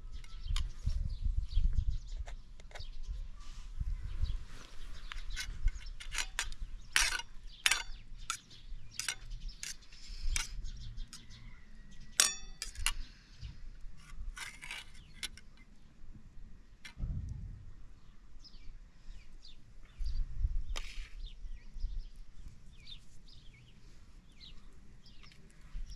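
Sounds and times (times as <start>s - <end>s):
fork clinking against metal bowl: 12.2s - 13.0s.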